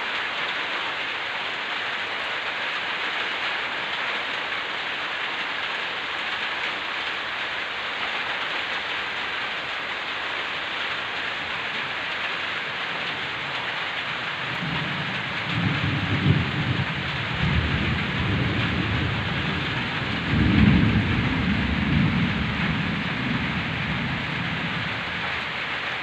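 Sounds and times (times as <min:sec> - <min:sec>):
heavy rain falling: 0:00.0 - 0:26.0
thunder rumbling: 0:14.4 - 0:25.5.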